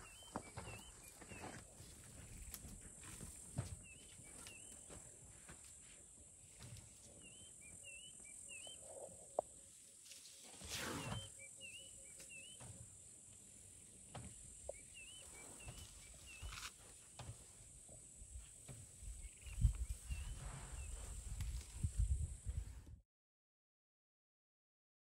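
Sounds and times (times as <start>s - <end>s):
bird chirps: 0.0s - 1.6s, 7.2s - 9.4s, 10.8s - 12.8s, 13.8s - 16.7s.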